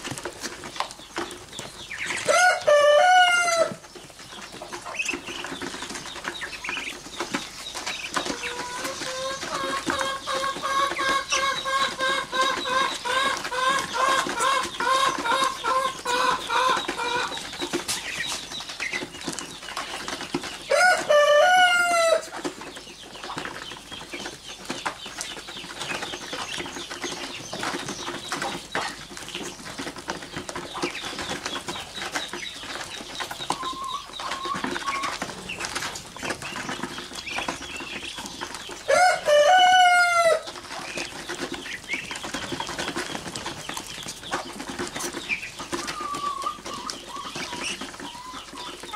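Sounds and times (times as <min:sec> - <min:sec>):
ducklings pecking clicks: 0:00.0 - 0:48.9
ducklings peeping: 0:00.0 - 0:48.9.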